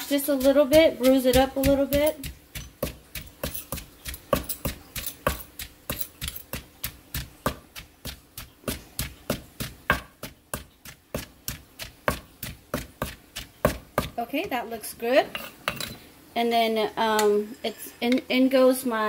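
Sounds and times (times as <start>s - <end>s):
pestle pounding in wooden mortar: 0.0s - 14.6s.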